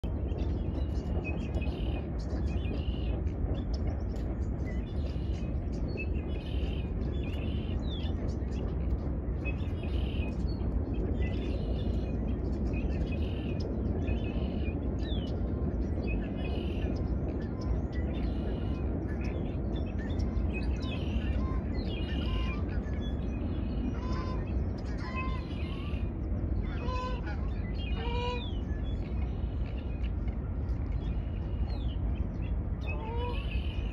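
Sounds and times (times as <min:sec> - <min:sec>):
steady low rumble: 0:00.0 - 0:33.9
small birds chirping: 0:00.1 - 0:33.9
birds harsh calls: 0:16.4 - 0:30.0, 0:31.0 - 0:33.9.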